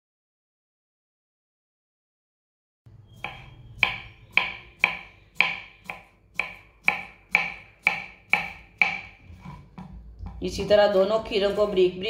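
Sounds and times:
knife chopping on wooden board: 0:03.2 - 0:11.7.

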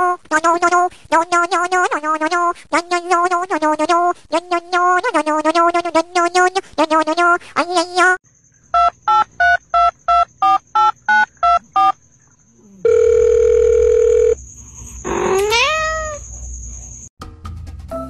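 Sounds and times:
cat meowing: 0:15.1 - 0:16.2.

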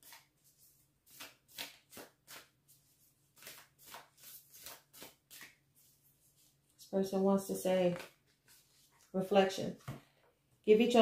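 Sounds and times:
cards being shuffled: 0:00.0 - 0:06.6, 0:07.8 - 0:09.1.

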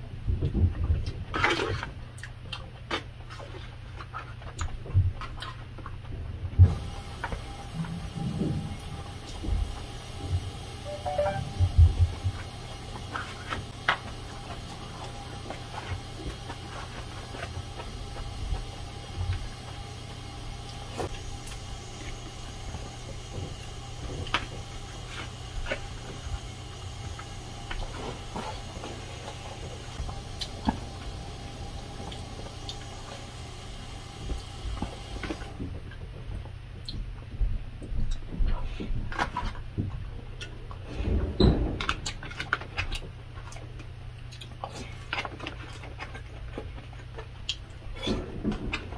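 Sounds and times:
chewing and mouth noises: 0:01.0 - 0:06.0, 0:42.0 - 0:48.8
steady low hum: 0:06.1 - 0:42.3.

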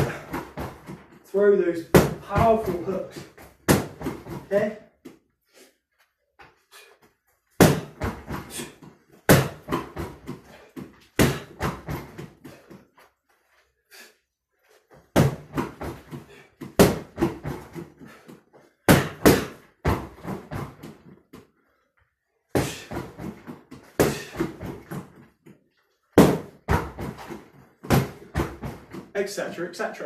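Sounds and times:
gloved punches on heavy bag: 0:03.6 - 0:04.6, 0:07.6 - 0:08.6, 0:09.3 - 0:10.4, 0:11.2 - 0:12.3, 0:15.1 - 0:17.9, 0:18.8 - 0:20.9, 0:22.6 - 0:25.2, 0:26.2 - 0:29.0.

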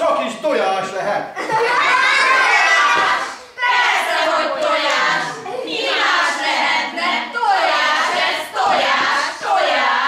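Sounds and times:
children chanting in a hall: 0:02.1 - 0:10.0.

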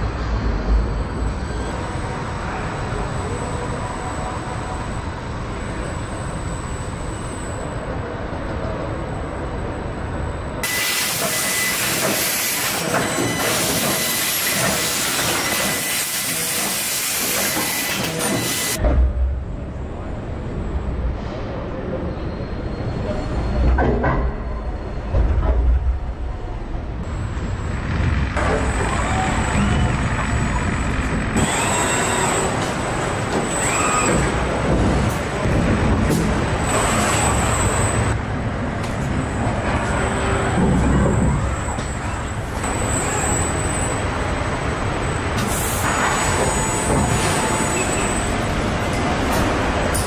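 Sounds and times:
factory line hissing: 0:10.6 - 0:18.8, 0:45.3 - 0:50.0
robot motors whining: 0:28.4 - 0:35.5
pneumatic hiss: 0:45.4 - 0:48.3.

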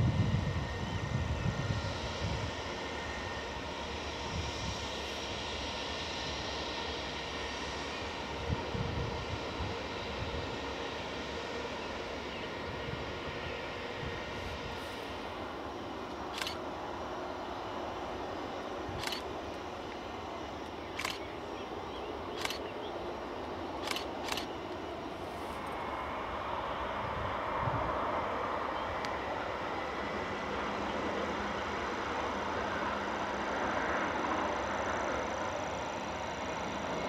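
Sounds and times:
distant jet engines whining: 0:00.0 - 0:37.0
camera shutter clicks: 0:16.3 - 0:16.6, 0:19.0 - 0:19.2, 0:21.0 - 0:21.2, 0:22.4 - 0:22.7, 0:23.8 - 0:24.5.

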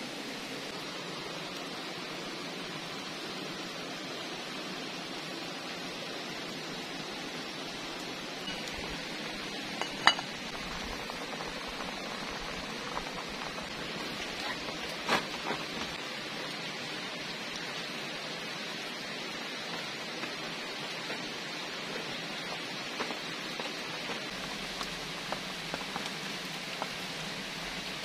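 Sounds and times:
background hiss: 0:00.0 - 0:28.0
metal pot clinking: 0:08.4 - 0:08.9, 0:09.8 - 0:10.4.

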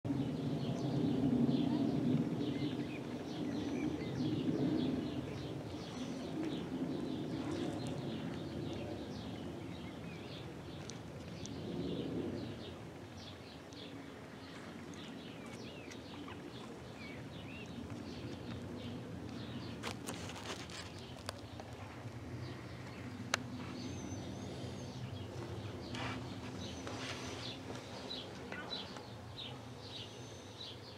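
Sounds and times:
birds chirping: 0:00.1 - 0:30.9
low background rumble: 0:00.1 - 0:30.9.

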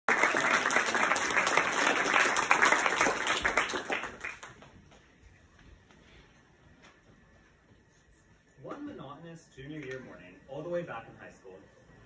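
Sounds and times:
audience applause: 0:00.1 - 0:04.9.

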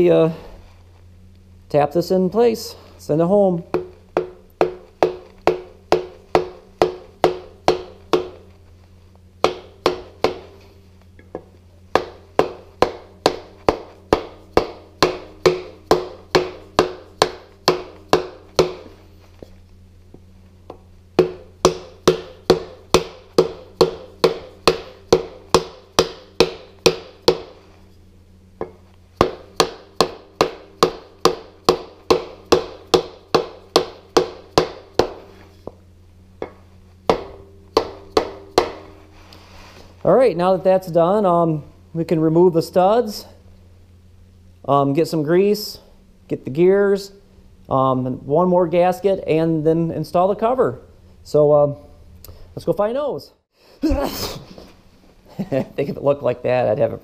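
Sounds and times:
mallet tapping on wood block: 0:03.7 - 0:08.4, 0:09.4 - 0:10.5, 0:11.2 - 0:19.0, 0:20.7 - 0:27.6, 0:28.6 - 0:35.3, 0:36.4 - 0:39.0.

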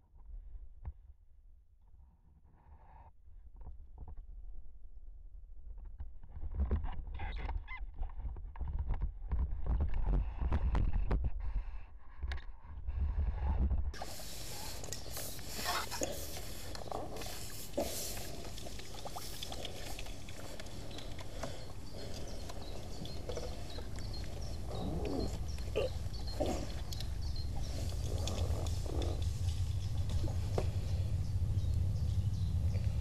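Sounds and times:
wind rumble on microphone: 0:06.0 - 0:14.0, 0:22.0 - 0:33.0.

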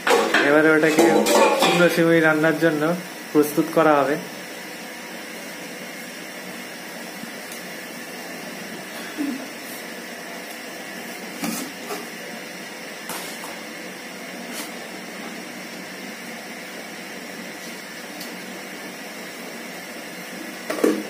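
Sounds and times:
metal kitchenware clinks: 0:00.9 - 0:01.8.

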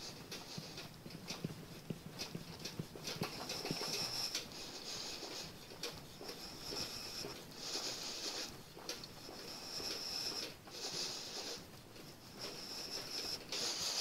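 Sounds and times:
scratchy metal rasping: 0:12.3 - 0:14.0.

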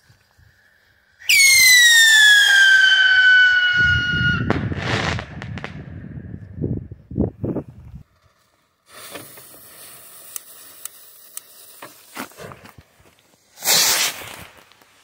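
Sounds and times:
firework rocket whistle: 0:01.2 - 0:05.8, 0:13.6 - 0:14.2
firework burst with rumbling echo: 0:01.5 - 0:07.0
sharp firework pops: 0:04.4 - 0:06.1.

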